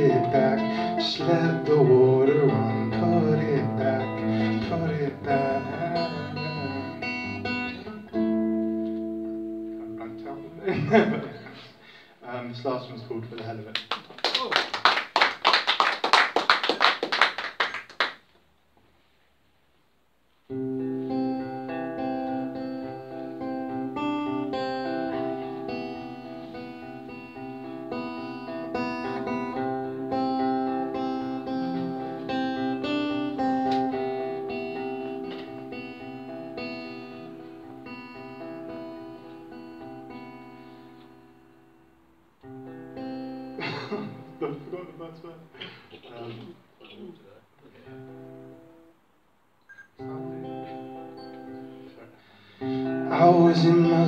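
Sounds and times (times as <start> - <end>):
person singing: 0.0 - 8.2, 52.8 - 54.0
acoustic guitar playing: 0.0 - 11.7, 20.5 - 45.4, 47.8 - 49.1, 50.0 - 54.0
applause: 13.4 - 18.3.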